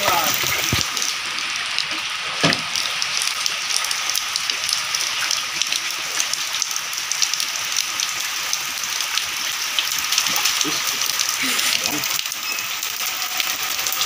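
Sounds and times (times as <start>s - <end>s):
steady rain falling: 0.0s - 14.0s
short thump: 2.4s - 2.7s.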